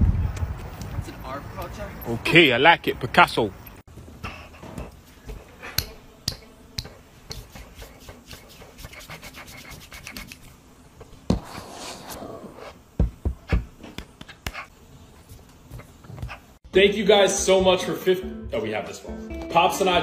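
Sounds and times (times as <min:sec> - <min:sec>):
scratching and rubbing: 0:06.8 - 0:10.5
heavy thumps: 0:12.9 - 0:14.3.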